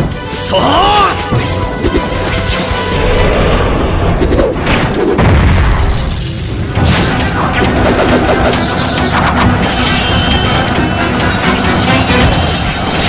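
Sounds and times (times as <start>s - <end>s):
dramatic background music: 0.0s - 13.0s
booming explosions: 2.9s - 8.2s.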